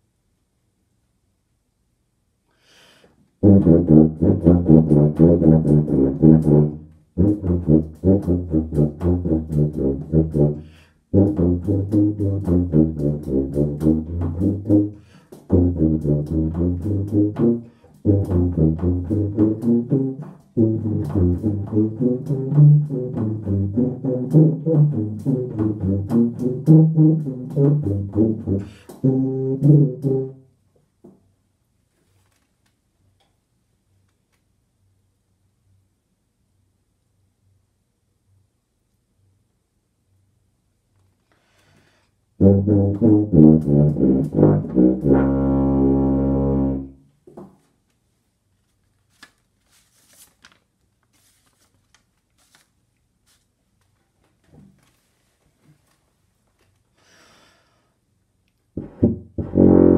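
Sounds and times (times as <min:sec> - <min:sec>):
tuba playing short low notes: 0:03.4 - 0:30.6, 0:42.4 - 0:47.0, 0:58.8 - 0:59.9.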